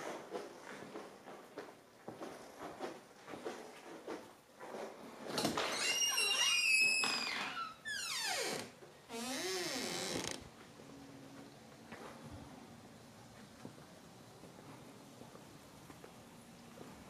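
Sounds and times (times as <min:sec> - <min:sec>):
door hinges squealing and creaking: 0:05.5 - 0:10.4.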